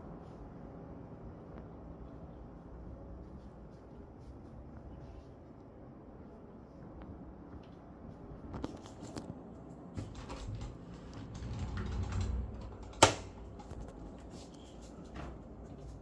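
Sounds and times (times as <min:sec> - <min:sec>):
wooden wardrobe door clicking: 0:10.0 - 0:13.7.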